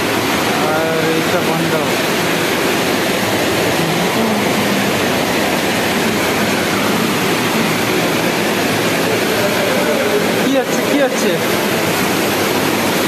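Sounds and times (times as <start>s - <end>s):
plant machinery: 0.0s - 13.0s
water rushing through filters: 0.0s - 13.0s.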